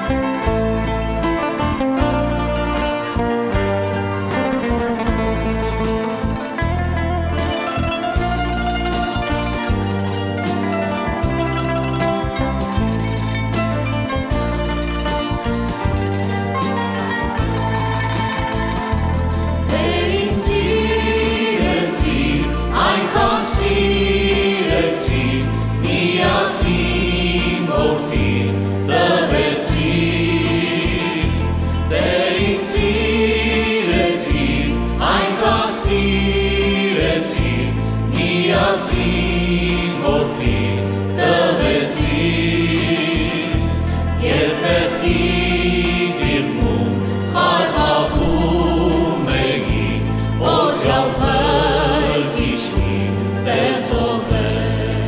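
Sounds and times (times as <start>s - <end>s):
plucked lute: 0.0s - 23.6s
pulsing bass: 0.1s - 55.0s
plucked zither: 6.4s - 19.8s
men and woman singing together: 19.7s - 55.0s.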